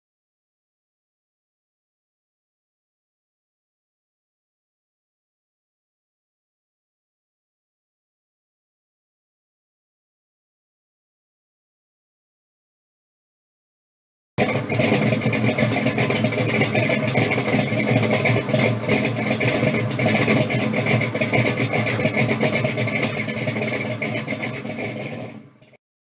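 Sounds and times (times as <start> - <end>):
car engine running roughly: 14.4 - 25.8.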